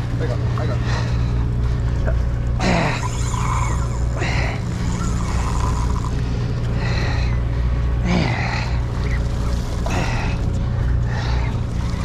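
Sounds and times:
boat engine droning: 0.0s - 12.0s.

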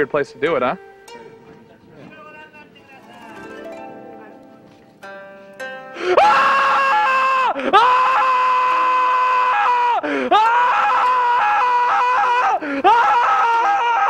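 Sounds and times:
man screaming: 6.1s - 14.0s.

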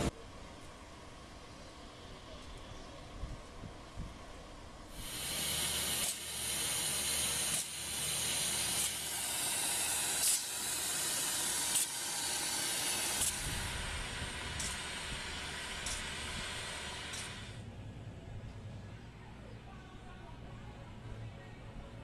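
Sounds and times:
paint spray hiss: 4.9s - 17.6s.

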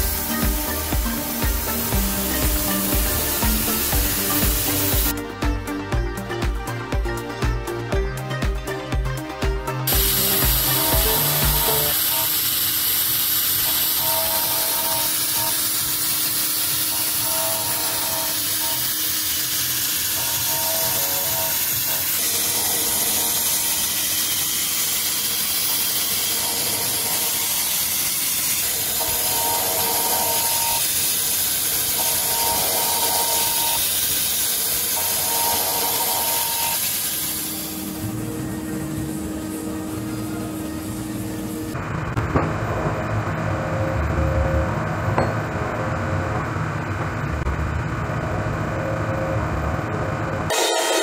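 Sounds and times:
milling cutter hissing on steel: 0.0s - 5.2s, 9.9s - 41.8s.

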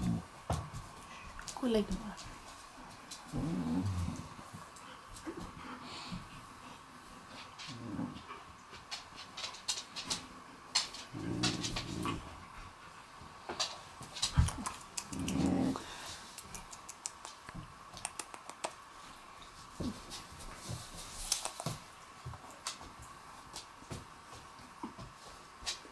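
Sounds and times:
dog growling: 0.0s - 0.3s, 3.3s - 4.4s, 7.6s - 8.4s, 11.1s - 12.4s, 15.0s - 16.0s
dogs scuffling on wooden floor: 0.0s - 16.3s, 19.0s - 25.9s.

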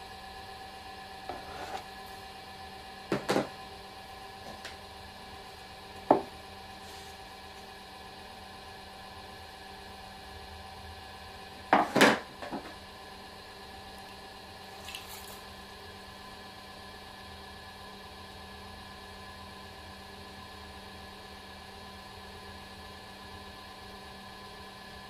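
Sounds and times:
electric motor hum: 0.0s - 13.0s.

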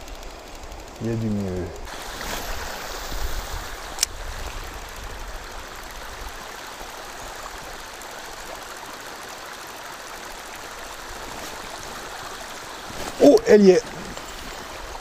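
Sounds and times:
river water over gravel: 0.0s - 15.0s
sharp click: 4.0s - 4.2s.

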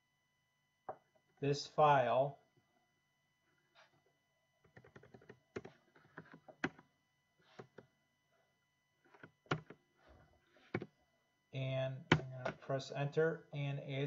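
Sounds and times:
typing on a computer keyboard: 4.7s - 6.8s, 9.5s - 9.8s.

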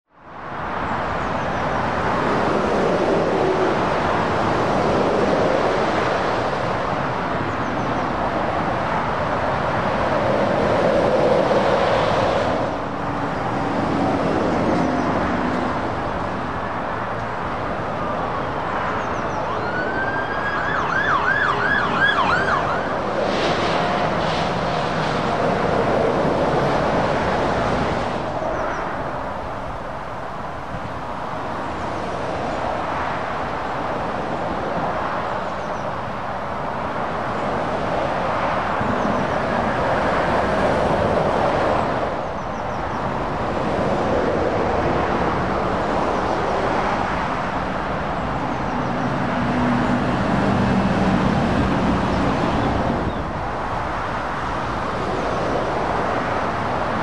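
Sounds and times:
road traffic passing: 0.1s - 57.0s
ambulance siren yelping: 19.4s - 23.0s.

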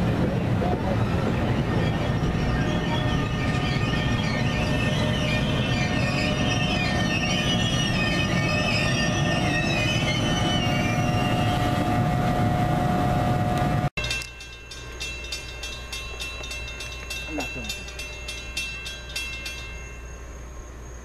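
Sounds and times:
steady whine: 0.0s - 21.0s
train passing at speed: 0.0s - 21.0s
high-pitched wheel squeal: 1.5s - 13.4s.

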